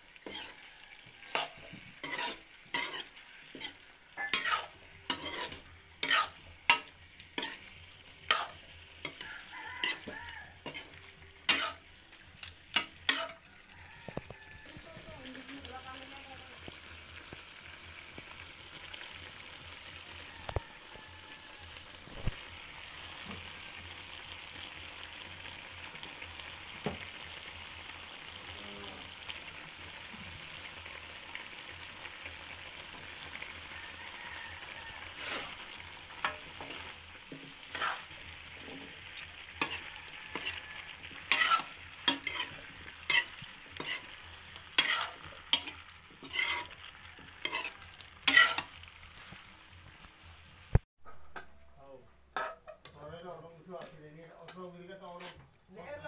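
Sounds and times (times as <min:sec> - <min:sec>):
curry sizzling in a pan: 0:00.0 - 0:51.2, 0:52.3 - 0:56.0
metal spoon scraping a pan: 0:00.1 - 0:16.0, 0:33.5 - 0:49.4, 0:52.3 - 0:53.0, 0:53.7 - 0:55.6.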